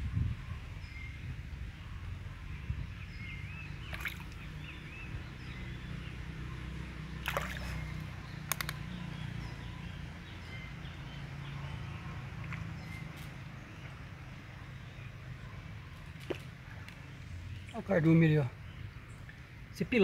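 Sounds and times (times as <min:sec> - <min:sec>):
small birds chirping: 0:00.0 - 0:20.0
sharp clicks: 0:08.5 - 0:08.8.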